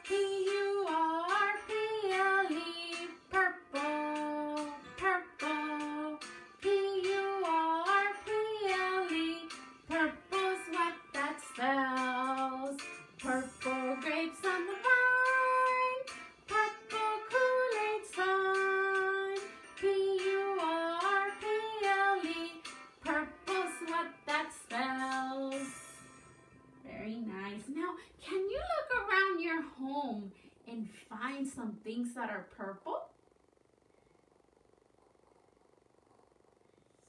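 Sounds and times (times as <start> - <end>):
person singing children's song: 0.0 - 26.2.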